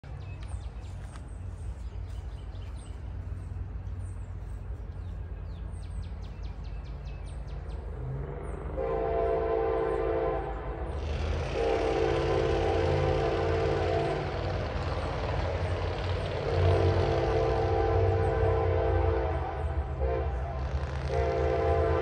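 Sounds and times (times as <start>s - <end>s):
diesel locomotives rumbling: 0.0s - 22.0s
locomotive air horn: 8.7s - 14.8s, 16.3s - 22.0s.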